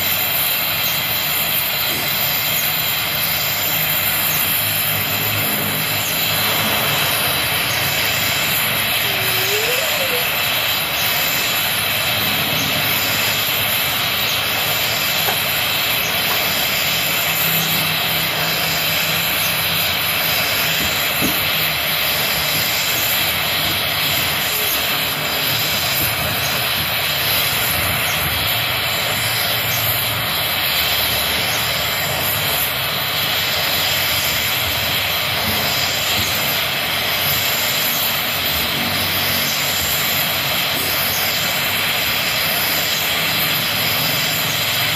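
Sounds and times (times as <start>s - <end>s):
gas torch flame hissing: 0.0s - 44.9s.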